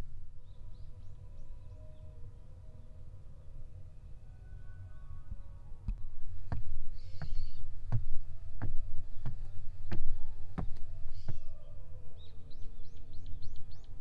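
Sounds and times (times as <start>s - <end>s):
wind rumble on microphone: 5.2s - 14.0s
footsteps on wooden steps: 6.4s - 11.5s
bird chirping: 6.8s - 7.7s, 9.1s - 14.0s.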